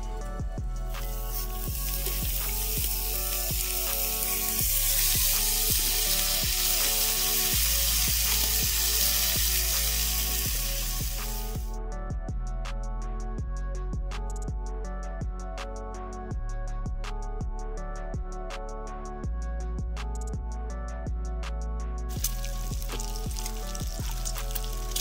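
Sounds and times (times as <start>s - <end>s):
bacon sizzling in a skillet: 1.0s - 11.7s, 22.1s - 25.0s.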